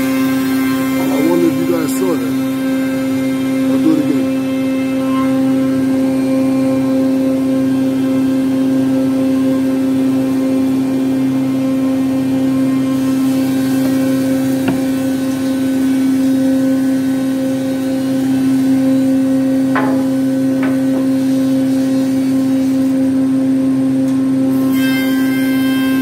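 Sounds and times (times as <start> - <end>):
woodworking planer humming: 0.0 - 26.0
light knocks: 14.6 - 15.1.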